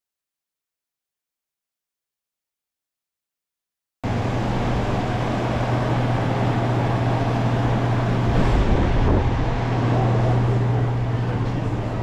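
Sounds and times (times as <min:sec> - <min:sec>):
vehicle engine hum: 0:04.0 - 0:12.0
road rushing noise: 0:04.1 - 0:12.0.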